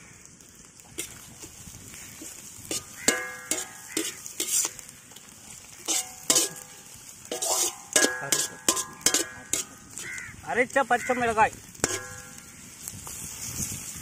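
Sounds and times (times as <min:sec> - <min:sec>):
vegetables sizzling in iron pan: 0:00.0 - 0:14.0
metal spatula scraping and knocking: 0:02.6 - 0:04.8, 0:05.8 - 0:10.2, 0:11.8 - 0:12.4
iron pan ringing: 0:02.7 - 0:04.8, 0:05.8 - 0:10.1, 0:11.8 - 0:12.6.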